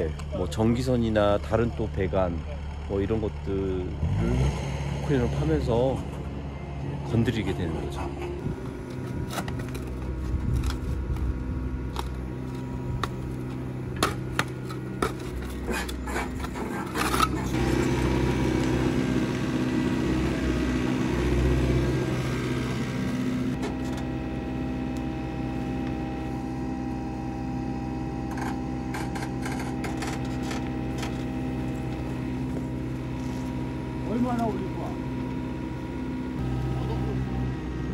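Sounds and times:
excavator diesel engine running: 0:00.0 - 0:37.9
sharp knocks and scrapes: 0:14.0 - 0:17.6.

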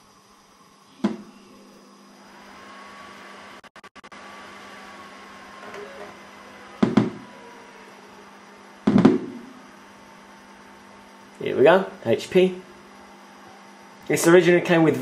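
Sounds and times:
optical drive whine: 0:00.0 - 0:15.0
sharp knock: 0:06.8 - 0:07.2, 0:08.9 - 0:09.4.

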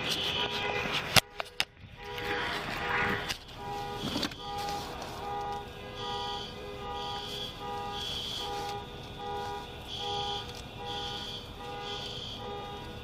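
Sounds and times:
car alarm two-tone beeps: 0:03.5 - 0:13.0.

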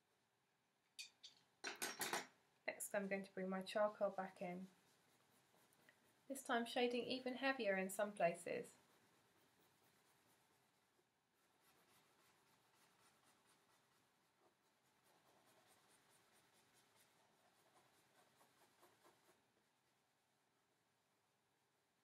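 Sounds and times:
charcoal scratching on paper: 0:02.9 - 0:19.9.

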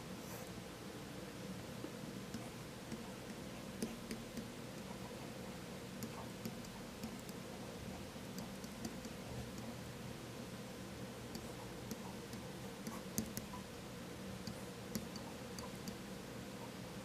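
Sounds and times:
low electrical hum: 0:00.0 - 0:17.0
stylus tapping on tablet: 0:02.3 - 0:05.1, 0:06.0 - 0:07.4, 0:08.3 - 0:09.7, 0:11.3 - 0:13.6, 0:14.4 - 0:16.0.

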